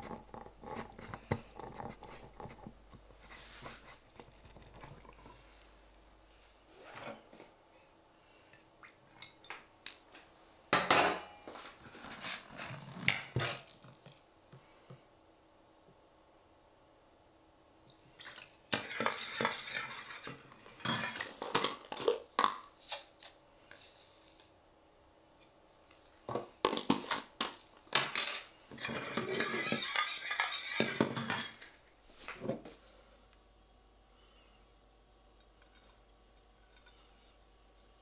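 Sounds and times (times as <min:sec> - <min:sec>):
spoon stirring in metal bowl: 0:00.0 - 0:05.4, 0:18.7 - 0:22.2, 0:26.7 - 0:31.8.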